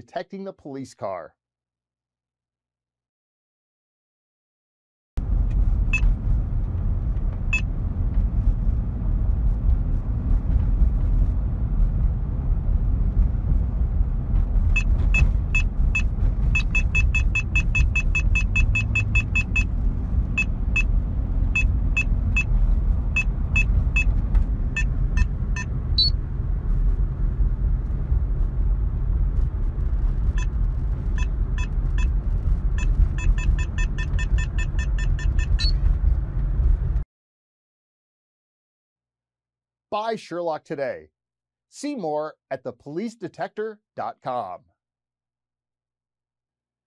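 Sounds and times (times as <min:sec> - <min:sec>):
car engine and road rumble: 0:05.2 - 0:37.0
detector short high beeps: 0:16.0 - 0:19.7, 0:24.8 - 0:26.2, 0:32.8 - 0:35.8.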